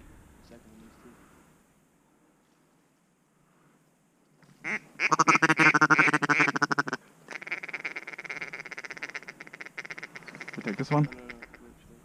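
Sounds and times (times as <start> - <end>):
duck call quacking: 4.6 - 11.7.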